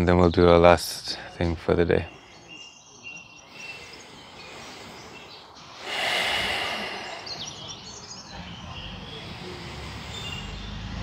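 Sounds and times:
person breathing deeply: 3.4 - 8.0, 9.1 - 10.8.

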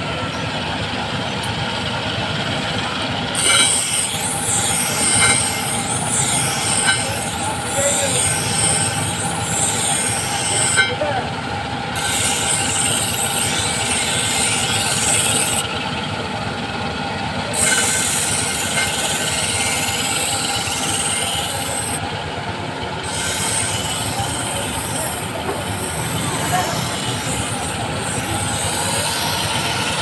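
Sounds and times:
bench grinder running: 0.0 - 30.0
blade grinding hiss: 3.3 - 11.0, 11.9 - 15.9, 17.5 - 22.0, 23.0 - 30.0.

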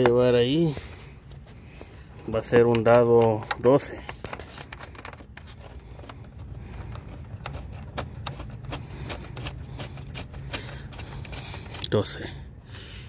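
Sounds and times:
metal and plastic parts clicking: 2.4 - 12.3.

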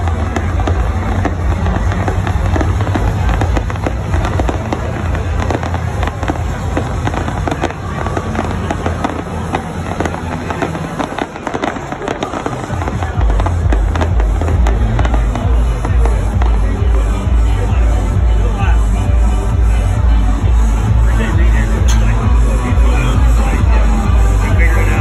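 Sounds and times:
fireworks crackling pops: 0.0 - 17.9.

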